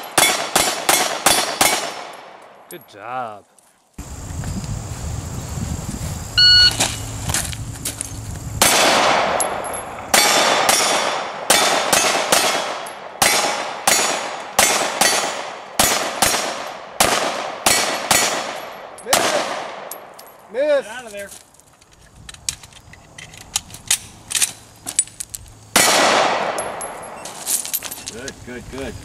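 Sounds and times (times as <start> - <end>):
handgun shots: 0.0 - 2.3, 8.6 - 20.0, 25.8 - 26.9
short electronic beep: 6.4 - 7.1.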